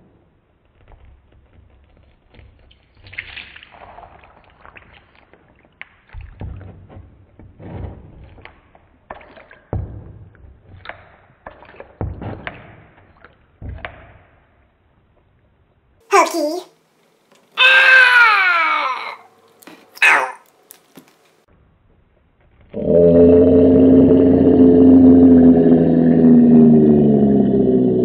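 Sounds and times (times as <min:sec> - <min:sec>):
wet squelching and sloshing: 0:02.3 - 0:06.8, 0:08.2 - 0:13.9.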